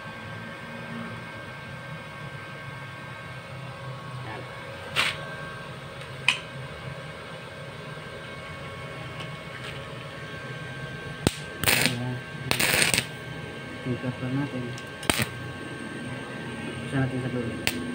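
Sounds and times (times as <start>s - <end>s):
steady low hum: 0.0s - 17.9s
welding arc crackling: 11.2s - 13.2s, 14.8s - 15.4s, 17.6s - 17.9s
electrode scraping on steel: 11.6s - 13.1s, 15.0s - 15.4s.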